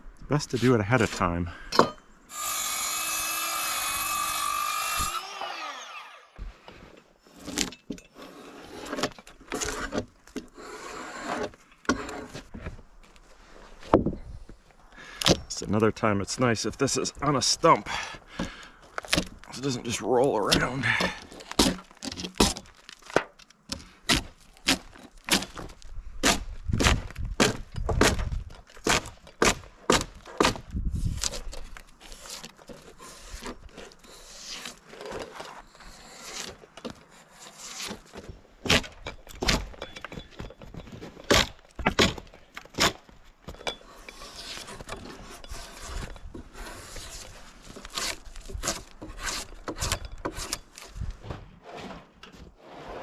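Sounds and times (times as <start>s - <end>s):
wood scraping and rubbing: 5.8s - 14.1s, 18.4s - 26.4s, 30.2s - 53.0s
wooden knocks and clunks: 13.8s - 14.6s, 20.5s - 30.8s, 38.1s - 43.8s, 47.7s - 52.6s.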